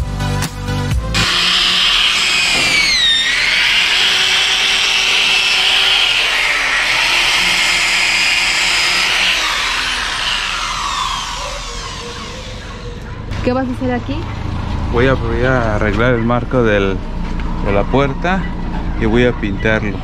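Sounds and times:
electric drill on steel: 0:01.2 - 0:14.4.

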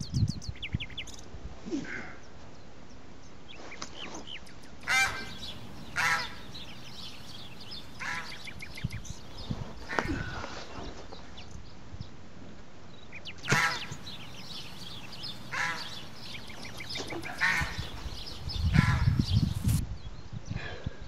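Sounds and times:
small birds chirping faintly: 0:00.0 - 0:21.0
fowl squawking: 0:04.8 - 0:08.6, 0:13.4 - 0:18.1.

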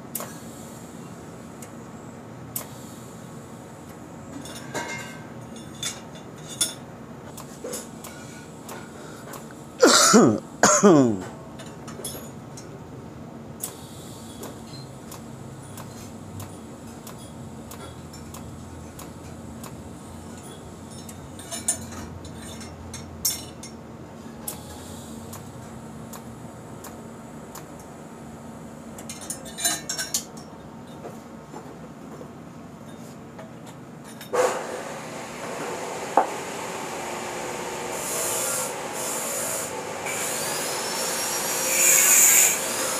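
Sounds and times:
welding hum: 0:34.7 - 0:42.9.

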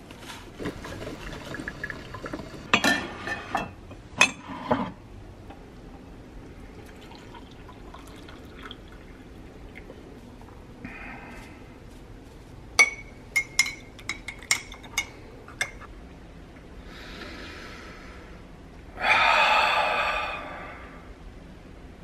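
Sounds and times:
coffee pouring into a mug: 0:00.6 - 0:02.7, 0:06.7 - 0:10.6.

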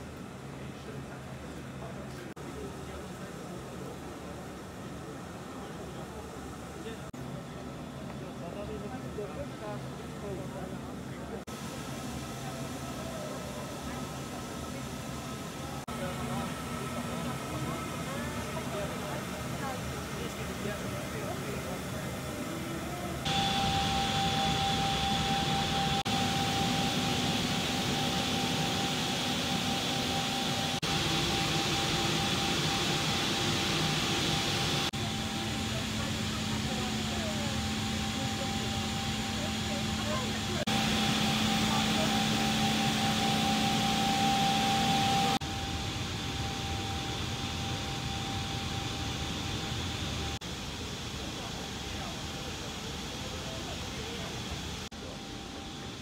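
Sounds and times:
machine hum and air rush: 0:00.0 - 0:56.0
high even whines: 0:21.5 - 0:50.4.

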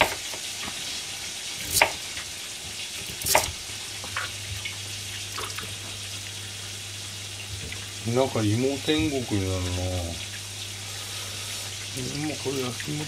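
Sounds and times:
deep-frying oil sizzling: 0:00.0 - 0:13.0
knife cutting on plastic board: 0:01.6 - 0:02.0, 0:03.0 - 0:03.6.

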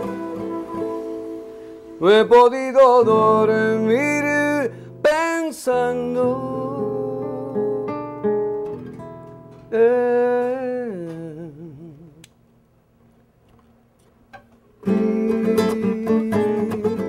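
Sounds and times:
man singing with vibrato: 0:00.0 - 0:08.1, 0:09.7 - 0:12.3, 0:14.8 - 0:17.0
classical guitar strummed chord: 0:00.0 - 0:10.5, 0:14.8 - 0:17.0.

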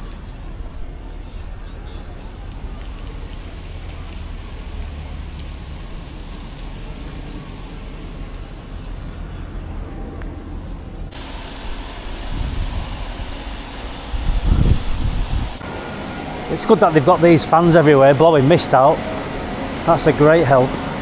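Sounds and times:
steady hiss: 0:01.4 - 0:08.9, 0:11.1 - 0:21.0
wind rumble on microphone: 0:12.1 - 0:15.6.

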